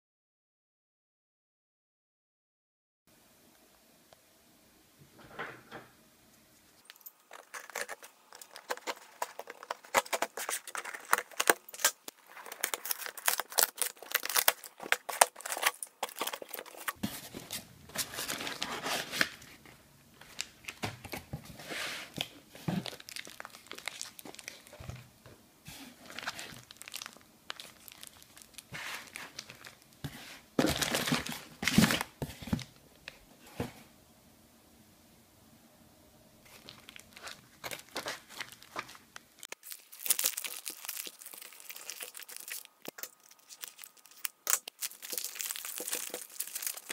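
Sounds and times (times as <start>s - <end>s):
crinkling newspaper packing: 7.2s - 21.3s, 22.0s - 25.1s, 25.8s - 32.7s, 36.5s - 46.9s
cardboard box tearing: 7.5s - 17.0s.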